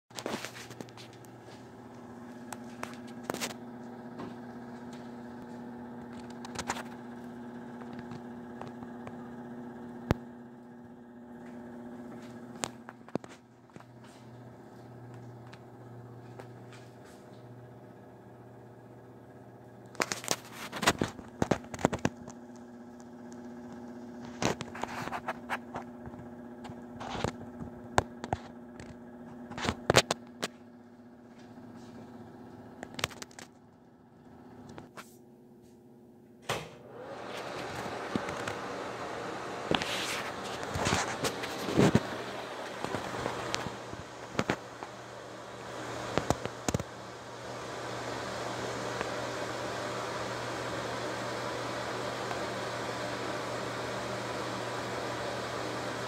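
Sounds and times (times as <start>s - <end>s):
exhaust fan humming: 0.1s - 56.0s
crackling clicks: 32.8s - 33.6s, 39.7s - 45.0s, 45.6s - 47.0s.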